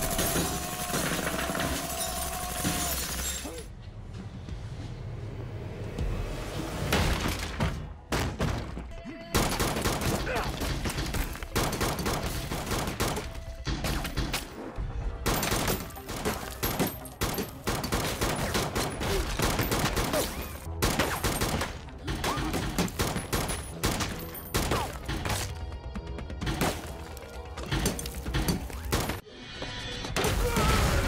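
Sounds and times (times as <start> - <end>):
rapid pistol gunfire: 9.4 - 10.9.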